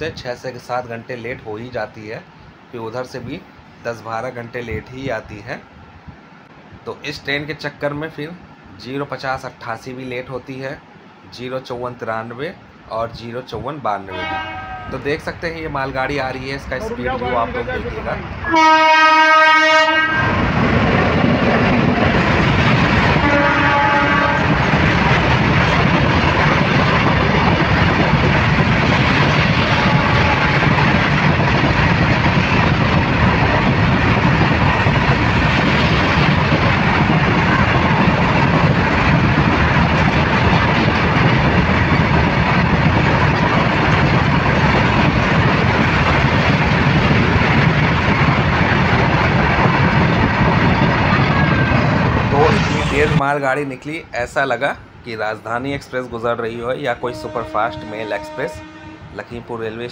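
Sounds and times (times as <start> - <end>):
locomotive horn blast: 14.1 - 15.2, 18.4 - 20.4, 23.2 - 24.6, 29.7 - 30.7, 57.0 - 59.2
train wagons rolling past: 14.1 - 59.9.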